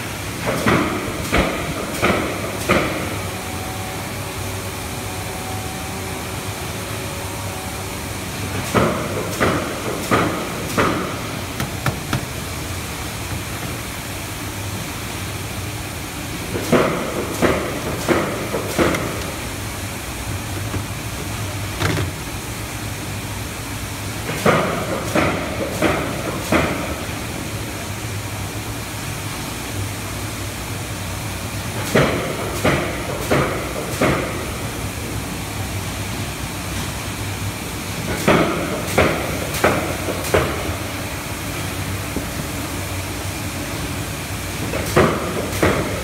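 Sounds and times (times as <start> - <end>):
conveyor line motor hum: 0.0 - 24.5
machinery knocks and clatters: 8.7 - 12.4.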